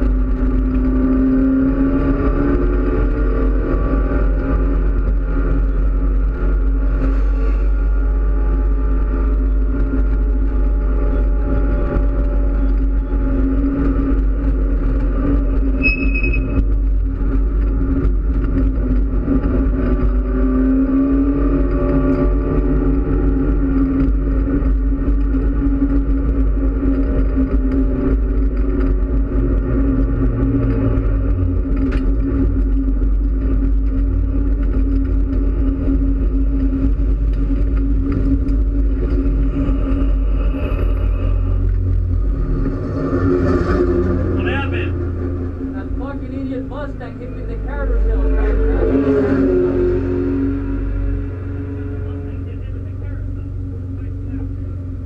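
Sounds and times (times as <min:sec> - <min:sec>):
car engine running at low revs: 0:00.0 - 0:55.0.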